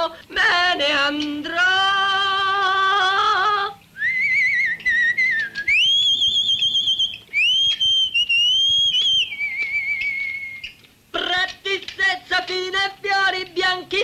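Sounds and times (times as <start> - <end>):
man whistling a tune: 4.0 - 10.8.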